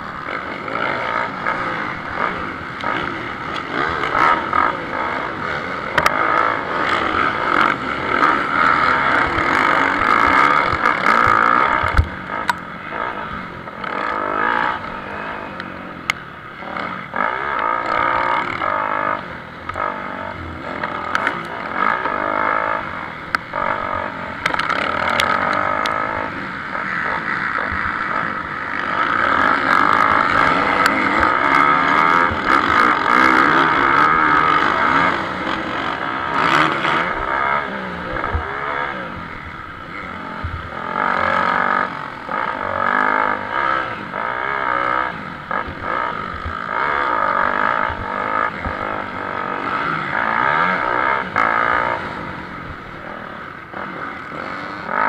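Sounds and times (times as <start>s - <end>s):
motocross engines revving: 0.0s - 55.0s.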